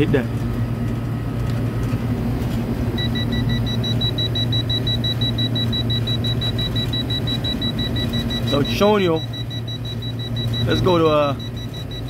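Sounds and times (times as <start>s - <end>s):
steady low hum: 0.0s - 12.0s
high-pitched alarm beeping: 3.0s - 12.0s.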